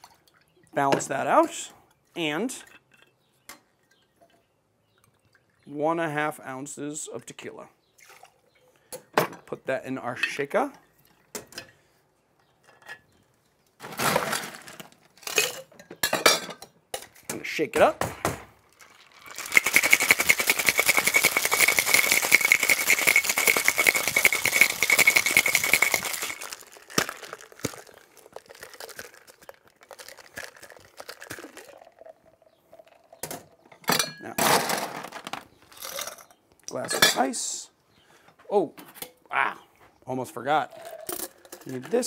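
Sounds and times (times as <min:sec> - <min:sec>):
ice rattling in cocktail shaker: 0:18.7 - 0:33.2, 0:35.7 - 0:36.3, 0:40.7 - 0:42.0.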